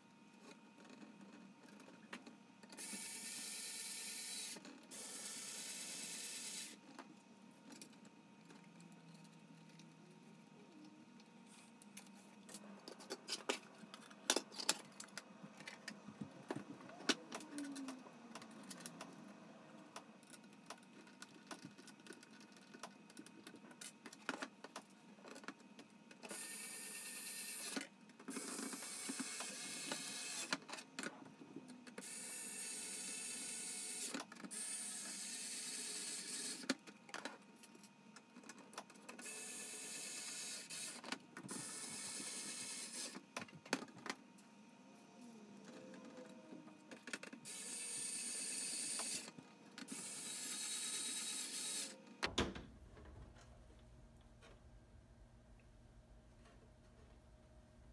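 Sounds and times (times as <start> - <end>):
electric screwdriver whirring: 26.3 - 30.6, 47.4 - 52.0.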